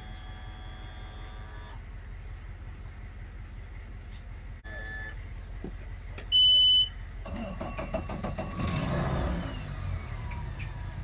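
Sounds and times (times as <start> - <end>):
outboard motor starting and idling: 7.2 - 11.0.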